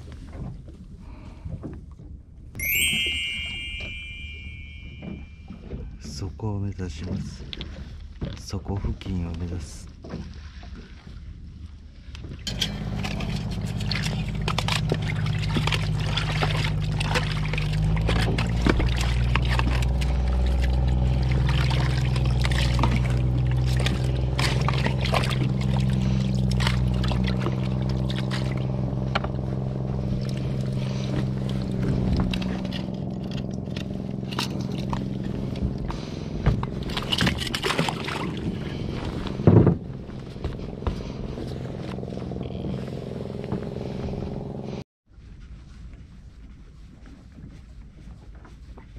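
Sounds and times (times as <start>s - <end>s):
water splashing along hull: 0.0s - 48.9s
boat engine running: 2.7s - 11.6s, 12.2s - 44.8s.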